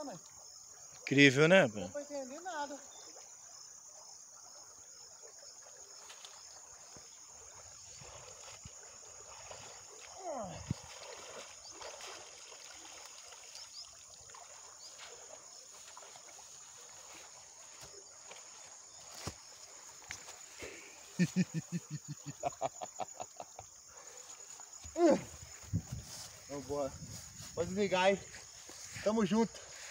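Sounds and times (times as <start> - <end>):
insects chirring: 0.0 - 29.9
water sloshing: 2.0 - 29.9
grass rustling: 6.0 - 22.8, 23.9 - 29.9.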